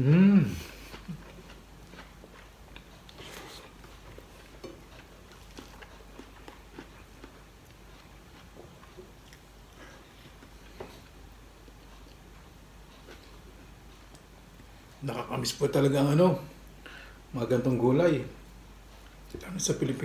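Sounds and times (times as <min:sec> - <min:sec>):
person chewing with mouth clicks: 0:00.2 - 0:14.7.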